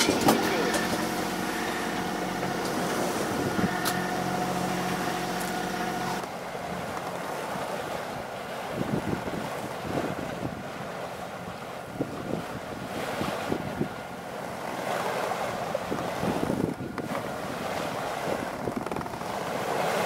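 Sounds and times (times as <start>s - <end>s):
boat engine running: 0.0s - 20.0s
wind and sea noise: 0.0s - 20.0s
wind gusts on microphone: 2.2s - 5.2s, 7.9s - 10.9s, 11.8s - 14.0s, 14.8s - 20.0s.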